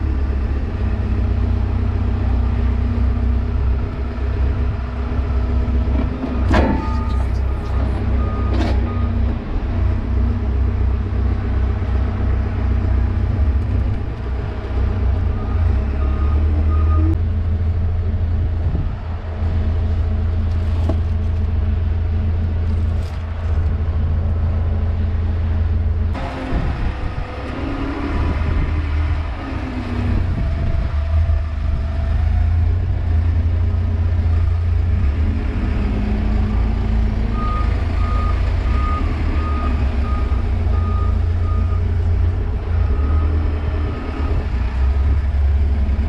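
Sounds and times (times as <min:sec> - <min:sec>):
heavy vehicle engine running: 0:00.0 - 0:46.0
reversing alarm beeps: 0:37.4 - 0:41.9.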